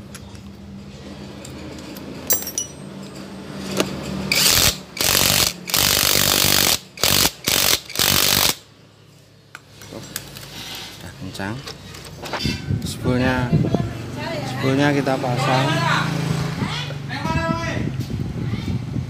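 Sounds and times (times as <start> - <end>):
impact wrench running: 4.3 - 8.6.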